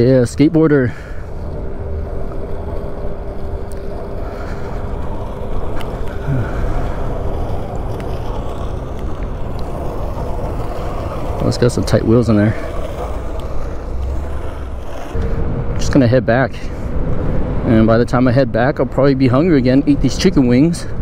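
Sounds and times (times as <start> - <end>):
faint steady hum: 0.0 - 11.4
wind and road noise: 0.0 - 21.0.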